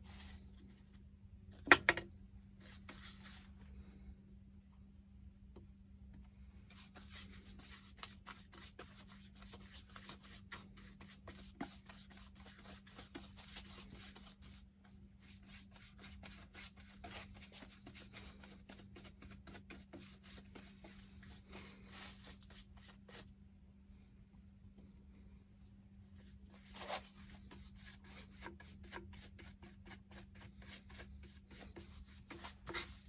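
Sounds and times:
paintbrush strokes on wood: 0.0s - 0.6s, 2.6s - 3.5s, 15.2s - 23.2s, 26.6s - 33.0s.

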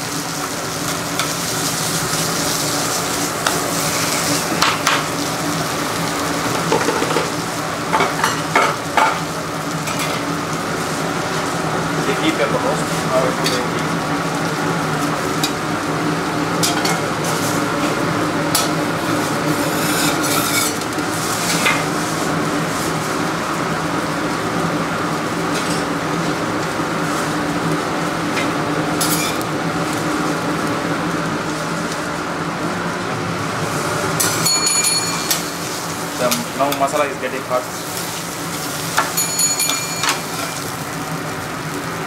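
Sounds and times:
dosa sizzling on griddle: 0.0s - 12.0s, 13.8s - 42.0s
kitchen hum: 0.0s - 42.0s
metal spatula scraping griddle: 3.4s - 4.5s, 19.4s - 20.8s, 39.7s - 40.7s.

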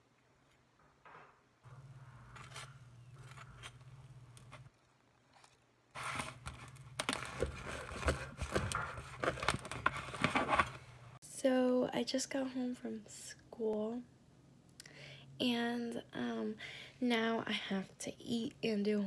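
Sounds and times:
low hum: 0.9s - 4.7s
knife scraping on bread: 2.2s - 4.7s.

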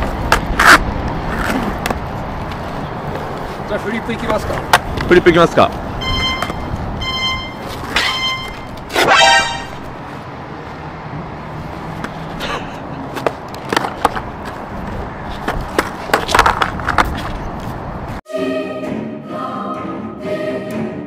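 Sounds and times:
skateboard wheels rolling on concrete: 0.0s - 9.0s, 9.8s - 18.2s
loud horn-like toot: 9.0s - 9.9s
skateboard deck clacking: 13.1s - 14.6s, 15.4s - 17.4s.

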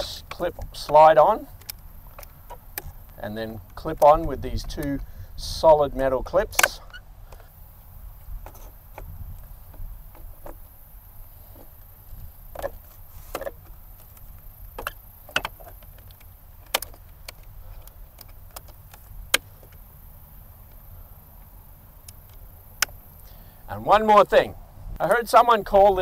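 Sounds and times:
metal wing clips snapping: 12.6s - 19.8s.

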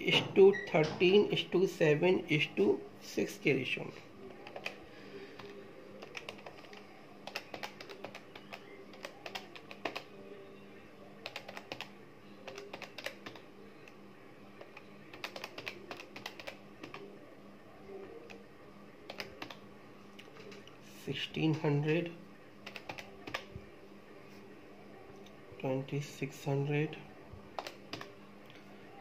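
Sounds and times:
faint steady hum: 0.0s - 29.0s
calculator keys tapping: 5.4s - 10.1s, 11.2s - 13.4s, 14.6s - 17.0s, 19.1s - 19.6s, 22.6s - 23.5s.

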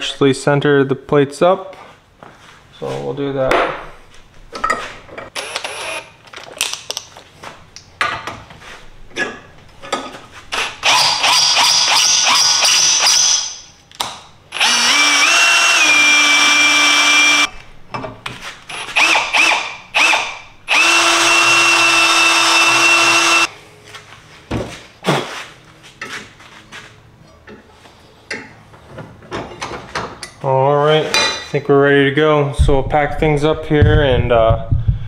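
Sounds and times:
drill motor whine: 14.5s - 17.5s, 18.7s - 23.5s.

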